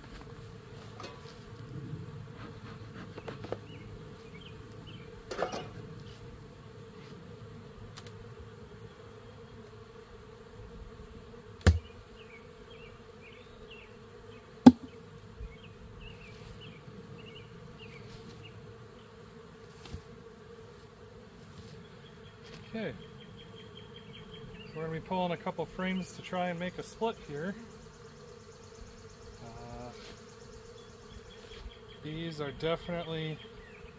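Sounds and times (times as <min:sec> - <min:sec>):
bees buzzing: 0:00.0 - 0:33.9
sharp wooden knocks: 0:14.7 - 0:14.9.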